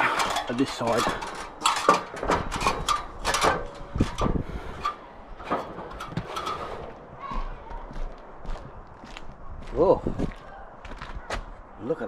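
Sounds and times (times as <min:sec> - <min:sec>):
knocks and clanks on ladder rungs: 0:00.0 - 0:07.0.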